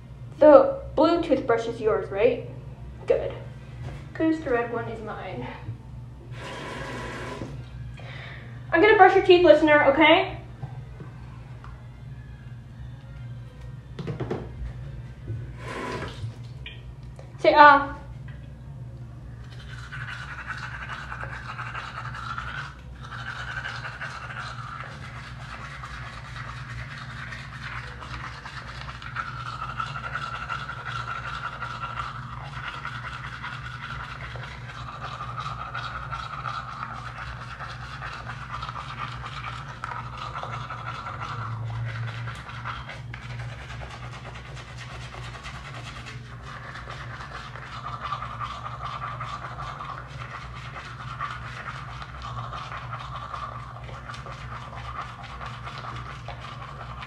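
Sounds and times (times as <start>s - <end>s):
steady low hum: 0.0s - 57.0s
toothbrush scrubbing: 6.4s - 7.7s, 15.6s - 16.6s, 19.3s - 57.0s.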